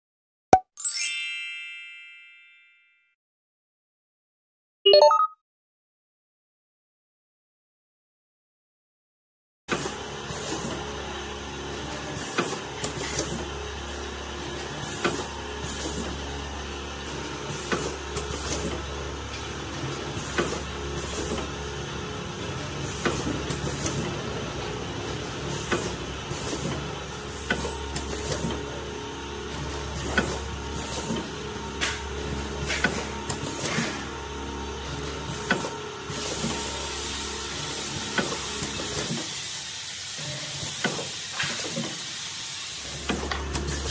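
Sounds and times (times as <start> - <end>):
packing machine motor hum: 9.7 - 39.8, 42.7 - 43.9.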